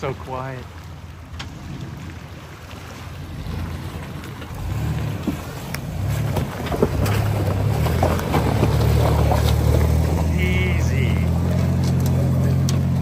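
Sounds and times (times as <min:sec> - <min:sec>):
pickup truck engine rumbling: 0:00.8 - 0:13.0
tyres clicking over rocks: 0:05.2 - 0:10.4, 0:11.3 - 0:13.0.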